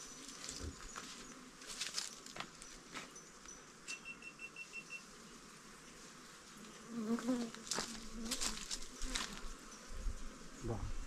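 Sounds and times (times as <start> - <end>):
bee buzzing: 4.8 - 11.0.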